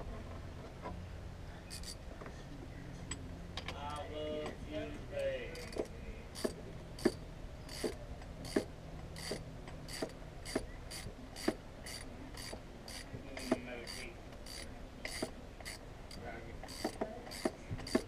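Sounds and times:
ratchet wrench clicking: 1.7 - 2.0, 5.6 - 18.0.

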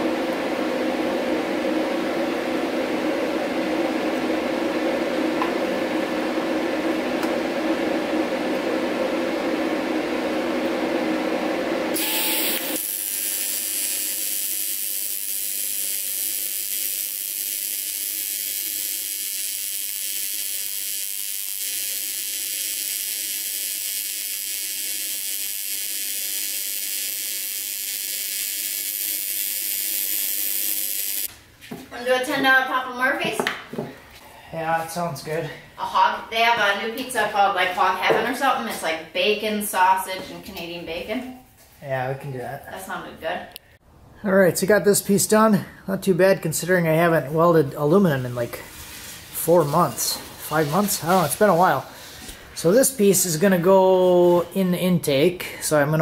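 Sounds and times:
steady hum with held tones: 0.0 - 33.3
welding arc hissing: 11.9 - 31.4, 48.6 - 53.4.

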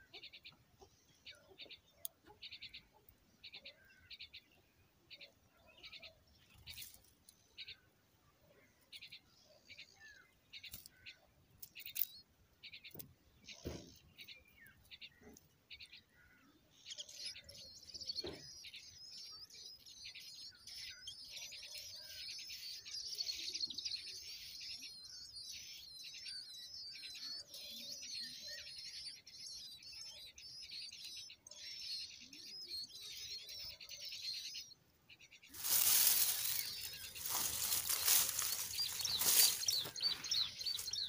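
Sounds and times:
loud rustling: 35.6 - 40.9
nestlings squeaking: 35.6 - 41.0.

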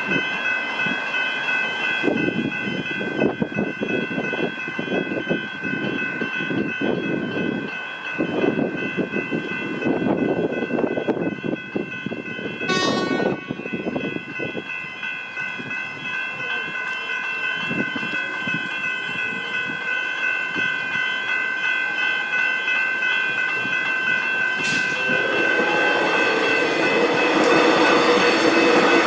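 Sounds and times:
level-crossing bells ringing: 0.0 - 29.0
train wheels clattering on rails: 0.0 - 29.0
brief high tone: 12.7 - 13.8.

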